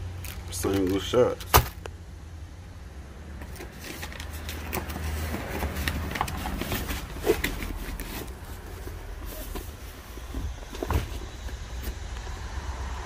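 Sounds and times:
boxes being handled: 0:03.4 - 0:12.1.

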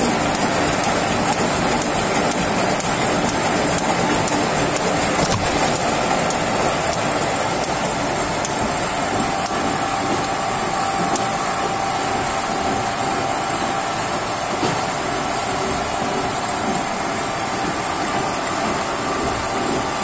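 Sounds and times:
metal lathe running: 0:00.0 - 0:20.0.

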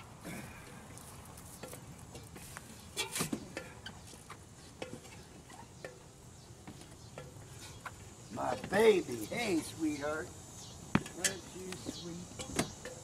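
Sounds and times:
footsteps clanking on metal ladder: 0:00.0 - 0:09.8.

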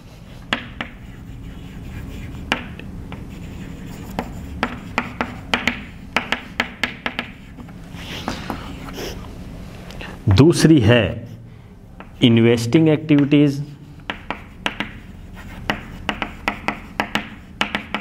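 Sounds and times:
low steady hum: 0:00.0 - 0:18.0
chalk tapping and scraping on board: 0:00.4 - 0:08.7, 0:12.0 - 0:12.2, 0:13.1 - 0:18.0.

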